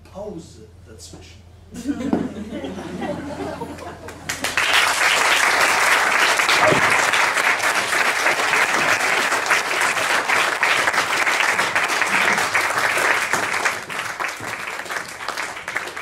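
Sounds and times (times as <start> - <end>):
audience applauding: 3.8 - 16.0.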